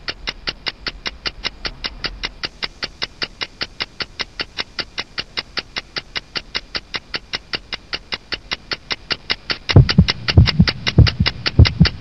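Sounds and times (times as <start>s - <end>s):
background music with ticking beat: 0.0s - 12.0s.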